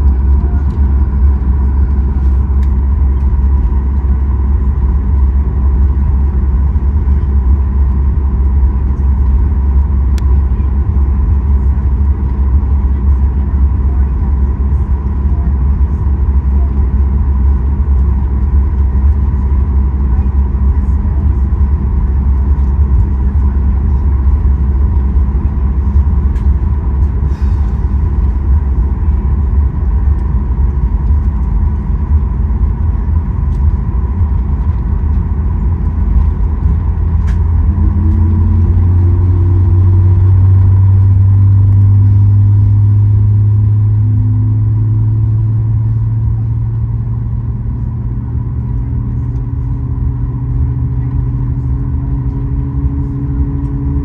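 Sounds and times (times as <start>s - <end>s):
faint engine whine: 0.0s - 54.0s
jet engines low rumble: 0.0s - 54.0s
light ticks in cabin: 1.7s - 4.1s, 7.9s - 10.6s, 25.9s - 27.2s, 33.0s - 37.5s, 48.6s - 49.7s.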